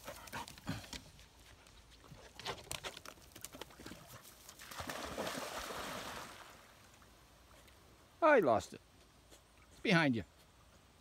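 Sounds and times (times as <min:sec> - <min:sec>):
dog splashing in water: 0:03.5 - 0:06.7.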